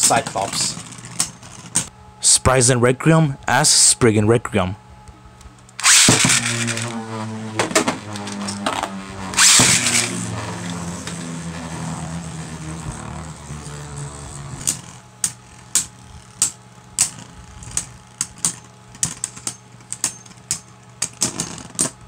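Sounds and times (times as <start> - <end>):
spinning tops launch clatter: 5.8 - 7.0, 7.6 - 11.3
spinning tops whirring: 5.8 - 18.4.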